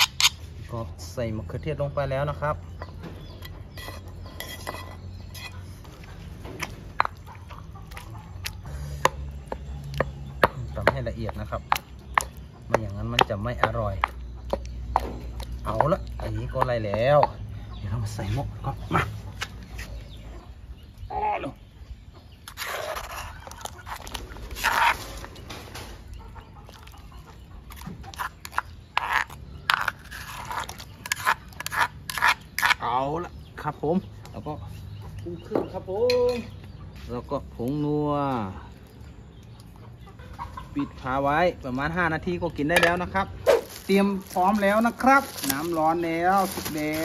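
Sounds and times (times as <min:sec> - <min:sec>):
chickens clucking: 0:01.8 - 0:37.1, 0:37.7 - 0:47.0
metal spoon scraping stone mortar: 0:03.5 - 0:05.8, 0:22.5 - 0:25.0, 0:28.1 - 0:33.0
pestle pounding in stone mortar: 0:09.0 - 0:17.4.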